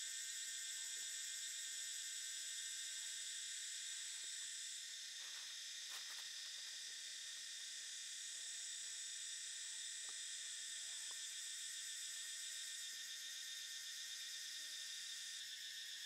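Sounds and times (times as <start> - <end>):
high-pitched insect chorus: 0.0 - 16.0.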